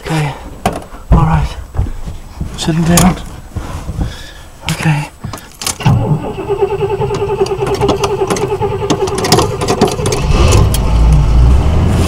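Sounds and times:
starter motor cranking: 5.6 - 11.0.

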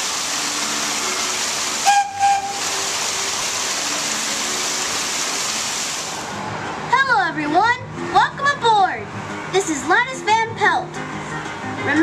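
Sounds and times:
locomotive whistle blast: 1.8 - 2.8.

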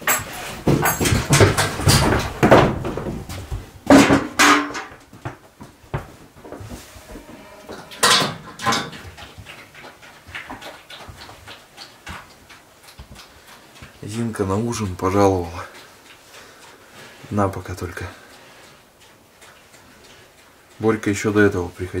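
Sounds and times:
pig chomping: 8.0 - 22.0.

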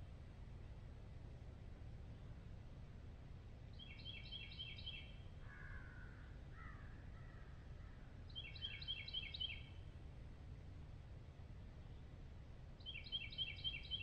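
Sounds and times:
lower rough bird call: 4.4 - 8.0.

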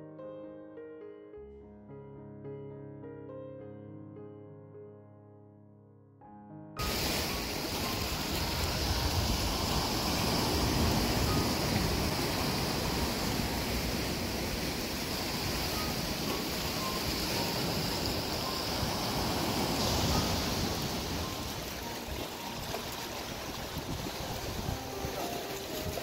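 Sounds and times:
surf washing against rocks: 6.8 - 26.0.

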